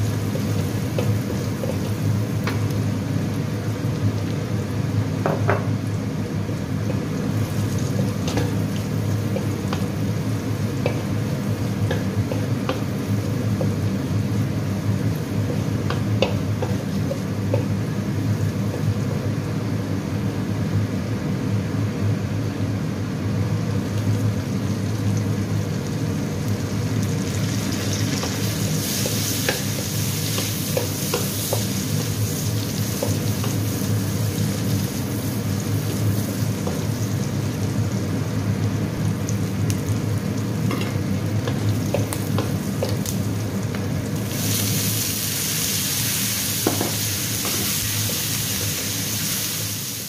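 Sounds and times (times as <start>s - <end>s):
food sizzling in oil: 0.0s - 19.7s, 23.7s - 50.0s.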